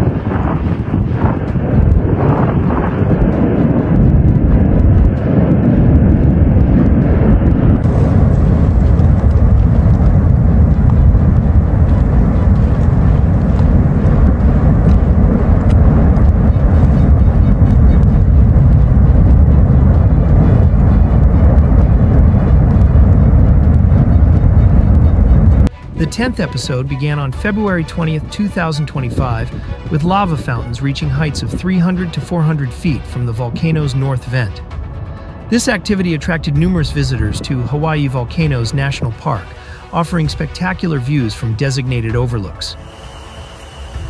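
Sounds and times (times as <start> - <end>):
lava fountain deep rushing rumble: 0.0 - 28.2, 28.9 - 32.6.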